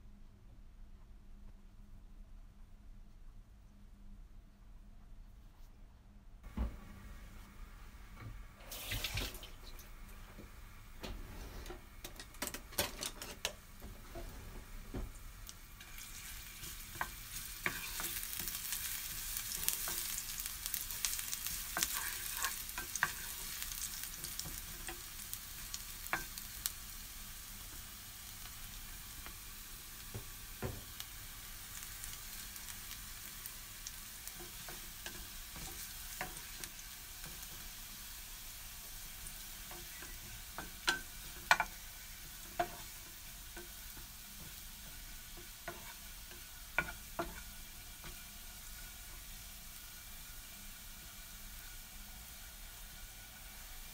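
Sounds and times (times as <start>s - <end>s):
garlic sizzling in oil: 13.2s - 53.9s
wooden spatula scraping pan: 16.6s - 18.2s, 21.7s - 23.6s, 45.3s - 47.5s.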